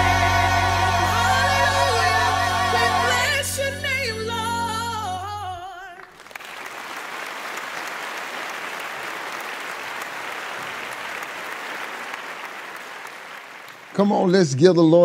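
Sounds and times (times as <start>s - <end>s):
gospel choir singing: 0.0s - 5.9s
lead voice singing: 0.0s - 6.0s
applause: 6.0s - 14.7s.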